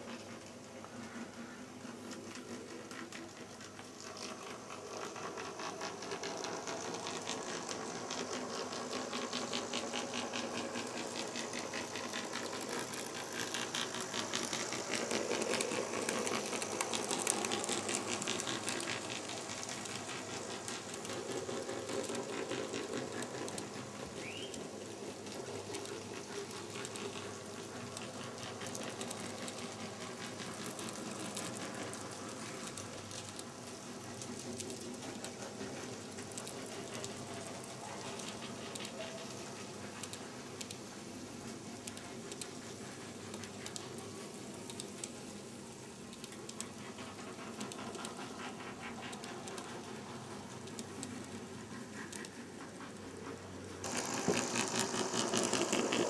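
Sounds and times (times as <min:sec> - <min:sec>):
model train wheels clicking: 0:00.0 - 0:56.0.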